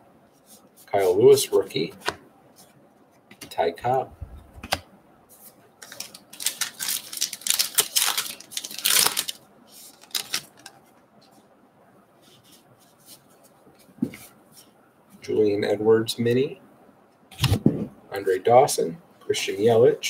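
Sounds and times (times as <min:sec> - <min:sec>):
wrapper tearing: 0:05.8 - 0:10.7.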